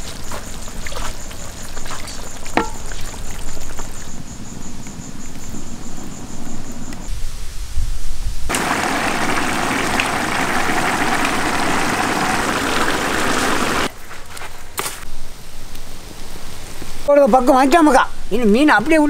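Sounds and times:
rice boiling hard: 0:00.0 - 0:04.2, 0:08.5 - 0:13.9.

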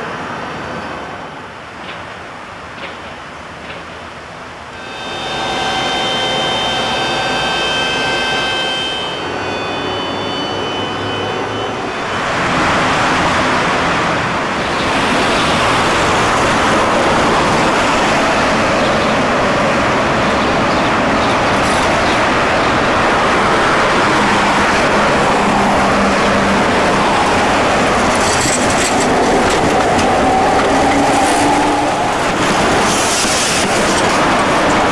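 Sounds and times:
street traffic noise: 0:00.0 - 0:34.9
steady whine: 0:04.8 - 0:12.3.

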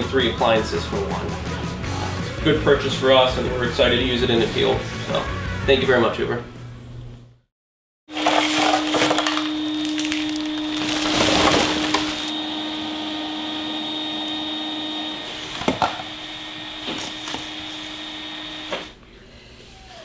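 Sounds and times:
electric motor humming and whining: 0:08.1 - 0:19.0.

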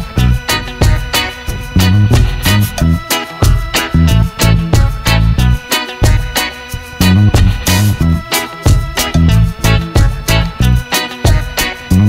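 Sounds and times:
bass line: 0:00.0 - 0:12.0
drum hits: 0:00.6 - 0:05.2, 0:07.1 - 0:08.0, 0:08.7 - 0:10.4.

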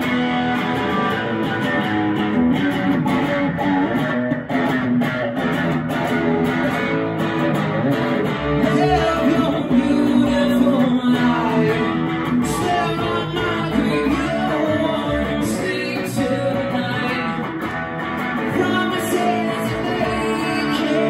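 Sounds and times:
electric guitar: 0:00.0 - 0:21.0
man singing lead vocal: 0:08.6 - 0:17.7, 0:18.3 - 0:21.0.

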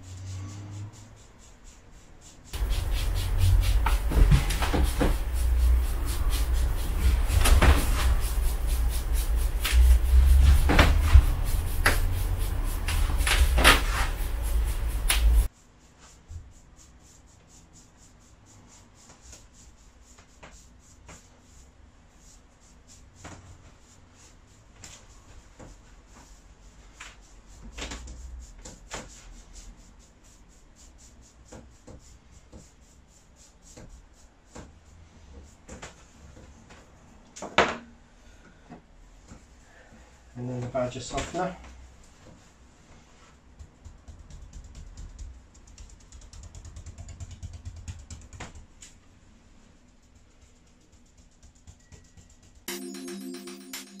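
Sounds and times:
brush strokes on wet paint: 0:00.0 - 0:37.2.

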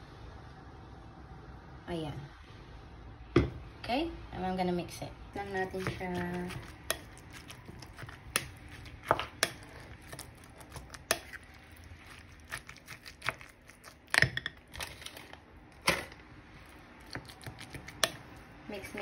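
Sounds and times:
spoon stirring wet mixture: 0:05.3 - 0:19.0.

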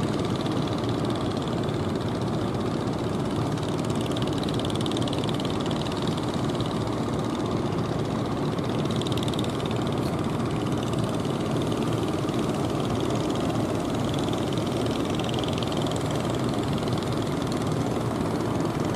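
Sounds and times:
boat engine running: 0:00.0 - 0:18.9.

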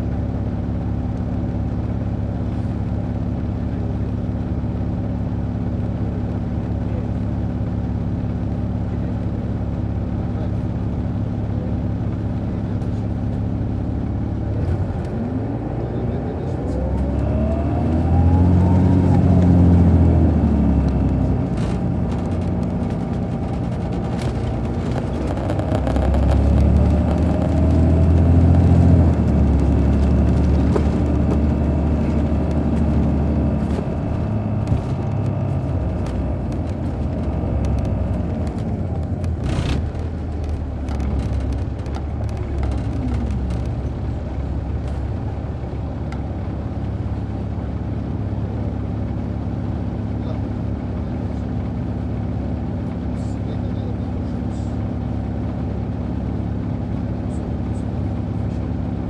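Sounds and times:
bus diesel engine: 0:00.0 - 0:59.0
transmission whine: 0:13.6 - 0:46.8.

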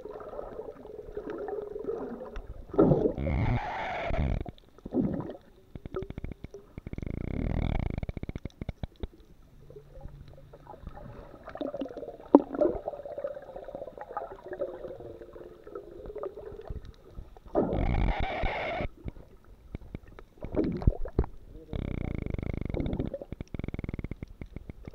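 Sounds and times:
underwater gurgling: 0:00.0 - 0:24.9
underwater clicks: 0:02.2 - 0:12.8, 0:16.0 - 0:24.9.

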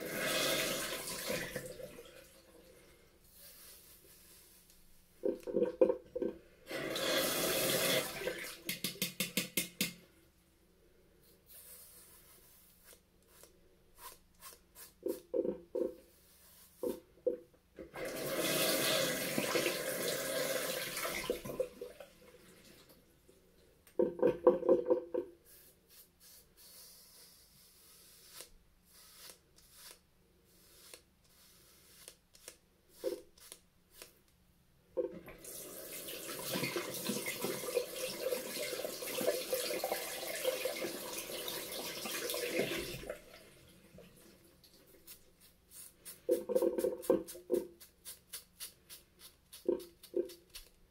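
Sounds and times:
running tap water: 0:00.0 - 0:02.4, 0:06.7 - 0:09.3, 0:17.9 - 0:23.0, 0:35.0 - 0:45.0
razor scraping through shaving foam: 0:25.5 - 0:34.2, 0:47.2 - 0:50.8.

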